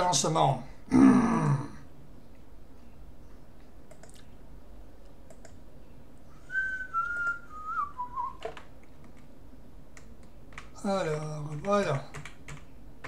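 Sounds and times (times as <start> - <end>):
faint mouse clicks: 3.3 - 4.3, 5.0 - 5.6
person whistling: 6.4 - 8.4.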